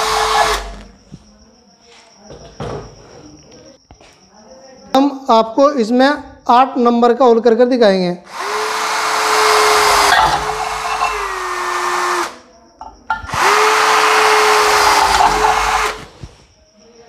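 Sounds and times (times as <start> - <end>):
cordless drill drilling metal: 0.0 - 0.8, 8.3 - 12.4, 13.2 - 16.2.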